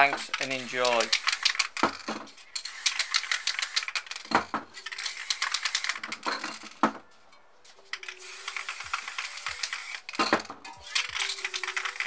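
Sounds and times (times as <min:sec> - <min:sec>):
spray can hissing: 0:00.0 - 0:01.8, 0:02.6 - 0:06.2, 0:08.0 - 0:10.2, 0:10.8 - 0:12.0
spray can ball rattling: 0:00.0 - 0:06.8, 0:07.7 - 0:12.0.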